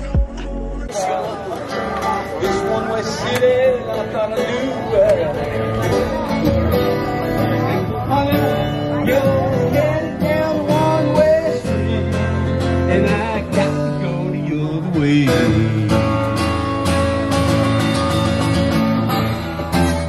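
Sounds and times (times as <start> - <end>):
acoustic guitar strumming chords: 0.0 - 20.0
person singing: 7.6 - 16.5.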